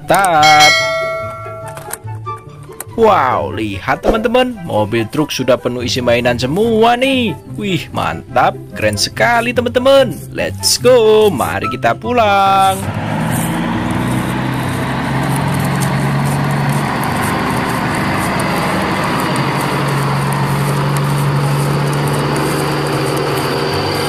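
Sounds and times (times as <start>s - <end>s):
truck engine droning: 0.4s - 2.9s, 10.2s - 24.0s
fine crackle: 12.8s - 24.0s.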